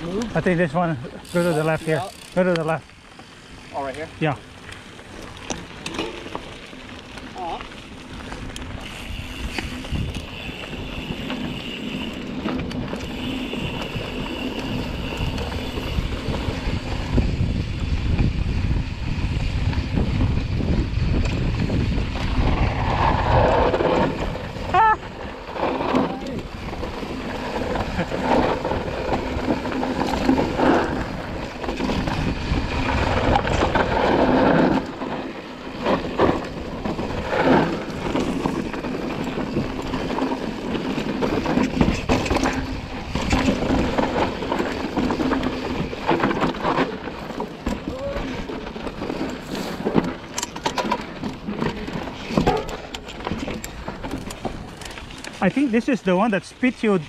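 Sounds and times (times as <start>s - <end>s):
bike rattling and knocking: 0.0s - 57.0s
tyres rolling over dirt and stones: 0.0s - 57.0s
wind rumbling on microphone: 4.3s - 56.8s
bike squeak: 8.8s - 16.9s.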